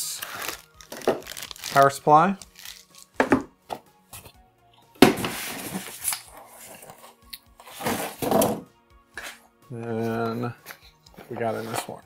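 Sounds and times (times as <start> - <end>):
rustling plastic and cardboard: 0.2 - 1.9, 5.2 - 7.1, 7.7 - 8.4.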